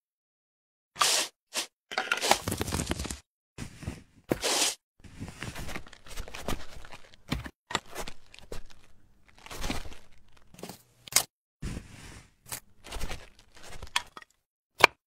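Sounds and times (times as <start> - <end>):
crunching and tearing sound effects: 5.6 - 11.3.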